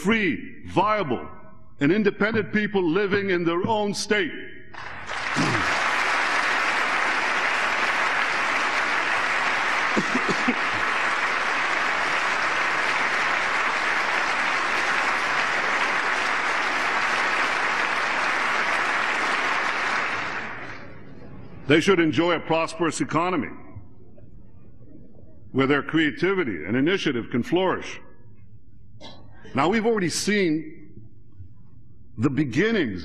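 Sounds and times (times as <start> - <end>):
large audience applauding: 4.8 - 21.0.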